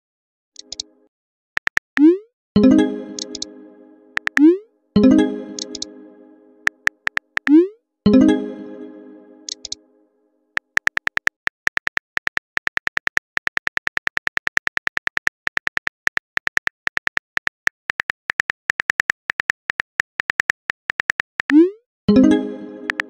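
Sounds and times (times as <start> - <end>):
phone keyboard typing clicks: 0.6 - 0.8, 1.6 - 2.1, 3.2 - 3.5, 4.2 - 4.5, 5.6 - 5.9, 6.7 - 7.6, 9.5 - 9.8, 10.6 - 21.6
chime tone: 2.6 - 6.7, 8.1 - 10.0, 22.1 - 23.0.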